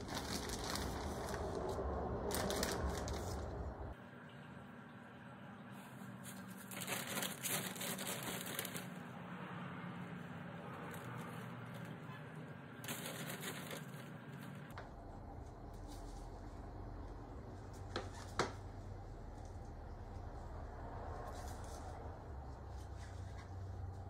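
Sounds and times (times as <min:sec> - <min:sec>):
plastic bag rustling and crinkling: 0:00.0 - 0:03.9, 0:06.2 - 0:09.1, 0:12.8 - 0:14.7.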